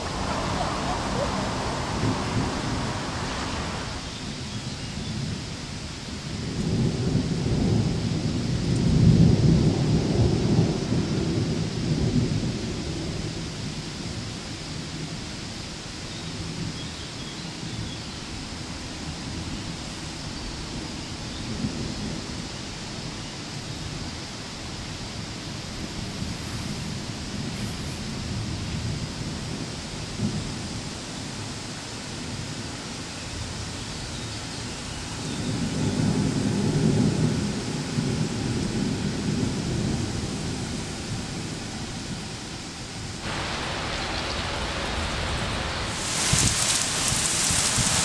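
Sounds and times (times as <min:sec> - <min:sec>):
thunder rumbling: 0:00.0 - 0:14.2, 0:35.2 - 0:48.0
rain hissing: 0:00.0 - 0:48.0.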